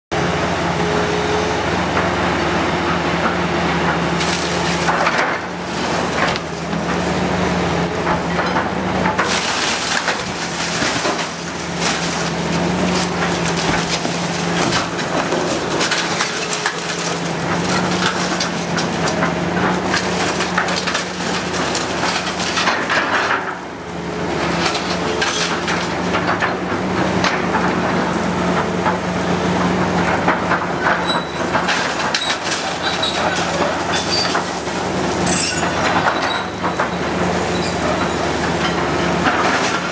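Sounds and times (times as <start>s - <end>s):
diesel engine running: 0.1s - 39.9s
debris crunching and crashing: 3.8s - 7.2s, 8.1s - 23.7s.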